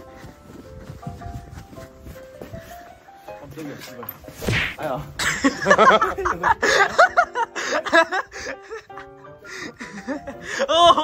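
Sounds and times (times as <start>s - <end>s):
boys laughing loudly: 5.2s - 11.0s.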